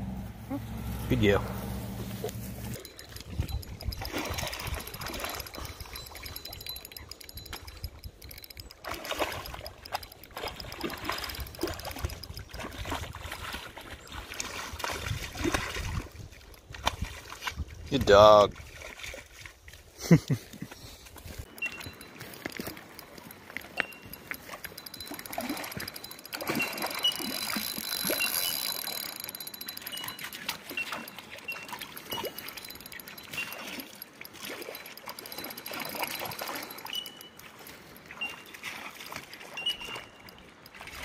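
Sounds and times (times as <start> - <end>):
dog splashing through shallow water: 18.5 - 20.0.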